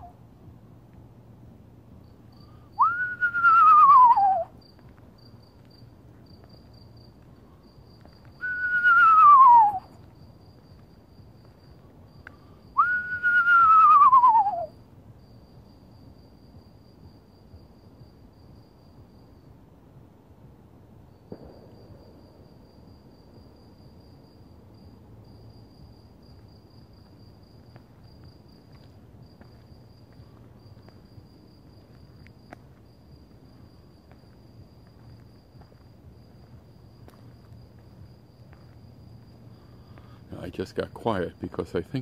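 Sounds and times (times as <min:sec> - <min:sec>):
low background rumble: 0:00.0 - 0:40.4
insect trilling: 0:02.3 - 0:04.8.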